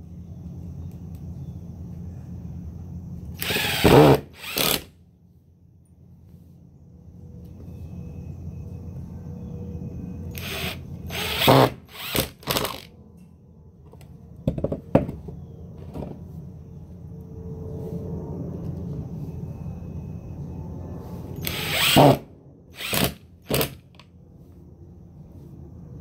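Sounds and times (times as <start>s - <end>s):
cordless drill drilling into wood: 3.4s - 4.9s, 10.3s - 12.9s, 21.4s - 22.2s, 22.8s - 23.9s.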